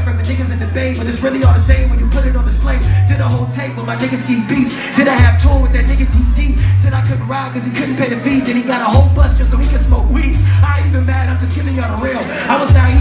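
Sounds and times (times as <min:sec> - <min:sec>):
hip-hop beat with deep bass: 0:00.0 - 0:13.0
person rapping into microphone: 0:00.0 - 0:13.0.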